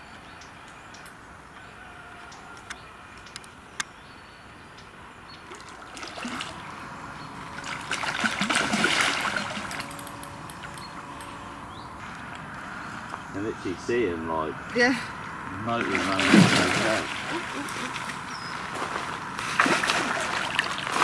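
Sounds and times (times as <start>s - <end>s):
fish splashing at water surface: 5.5s - 6.7s, 7.5s - 10.0s, 15.7s - 21.0s.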